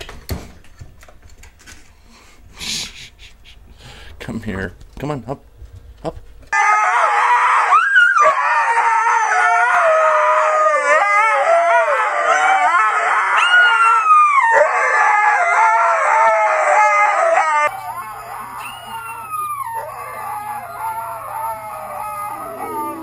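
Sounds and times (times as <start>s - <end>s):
steady low hum: 1.6s - 6.5s
huskies howling: 6.5s - 23.0s.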